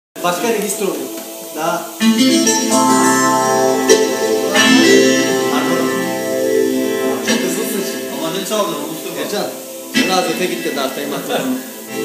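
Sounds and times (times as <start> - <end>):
accordion playing held chords: 2.0 - 10.4.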